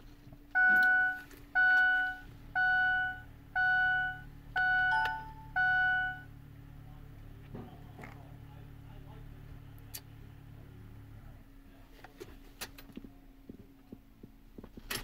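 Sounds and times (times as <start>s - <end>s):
low steady hum: 0.0s - 15.0s
dashboard warning chime: 0.5s - 6.3s.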